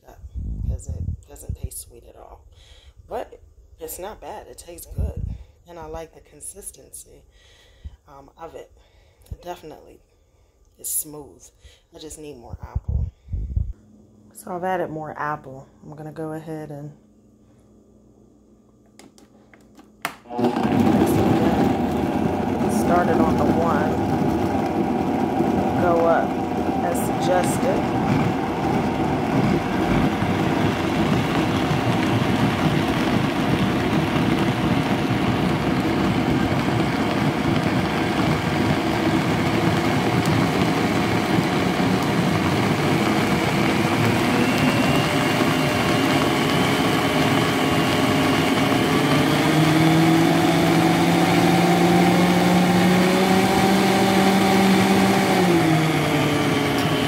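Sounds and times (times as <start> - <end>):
blender motor running: 20.0 - 57.0.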